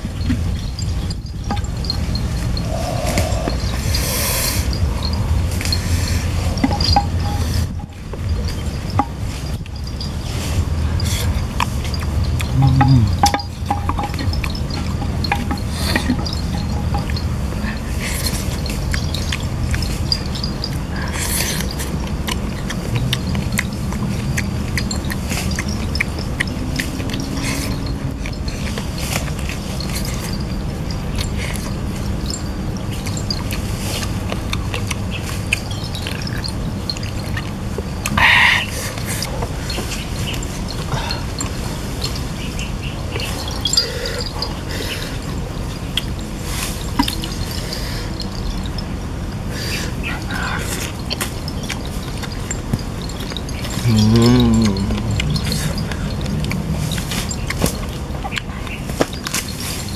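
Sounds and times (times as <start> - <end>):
steady low rumble: 0.0 - 38.1, 53.9 - 58.2
steady low hum: 0.0 - 58.8
person chewing food: 0.0 - 59.9
mouth smacks and clicks: 11.0 - 17.3, 50.1 - 59.5.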